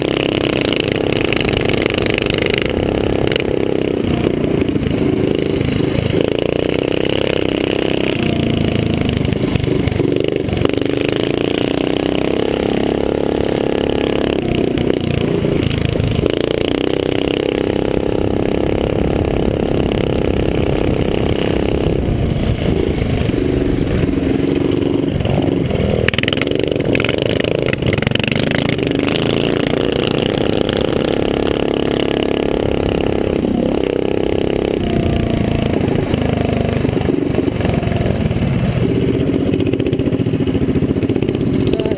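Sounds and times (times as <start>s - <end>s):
mini-bike engine racing: 0.0s - 41.9s
wind rushing over microphone: 14.5s - 40.9s.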